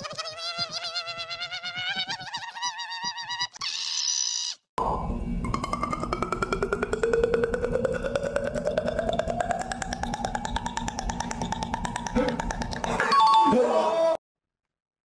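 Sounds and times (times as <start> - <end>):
fast even ticking: 5.5 - 13.0.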